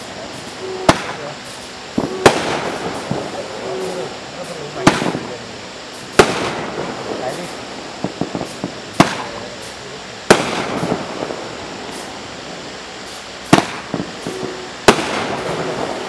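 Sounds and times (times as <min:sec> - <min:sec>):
firework pops and crackles: 0:00.0 - 0:16.0
sharp firework bangs: 0:00.0 - 0:16.0.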